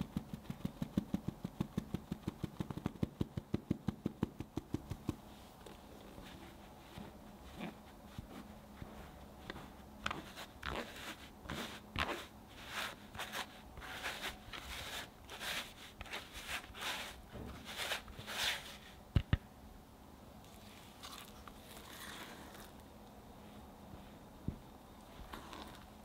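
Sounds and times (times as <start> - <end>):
sieve rasping: 6.2 - 19.0.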